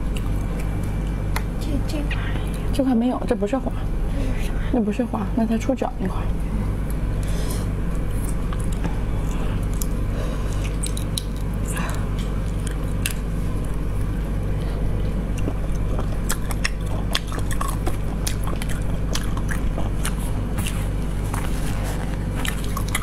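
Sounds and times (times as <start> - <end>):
wet chewing and smacking: 0.0 - 1.5, 6.8 - 23.0
steady low hum: 0.0 - 23.0.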